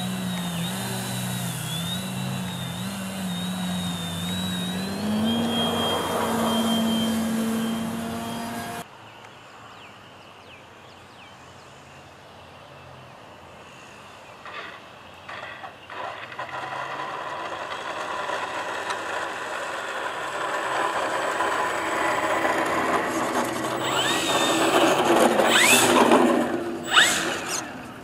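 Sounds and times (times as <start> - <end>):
model aeroplane motor whirring: 0.0 - 8.8, 15.9 - 28.0.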